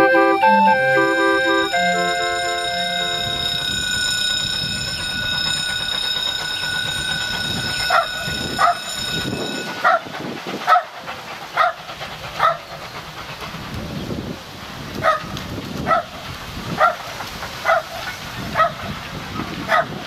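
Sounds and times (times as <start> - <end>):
held musical chord: 0.0 - 5.0
dog barking: 9.8 - 10.0, 10.7 - 10.9, 11.6 - 11.8, 12.4 - 12.6, 15.0 - 15.3, 15.9 - 16.1, 16.8 - 17.0, 17.6 - 18.8, 19.7 - 20.0.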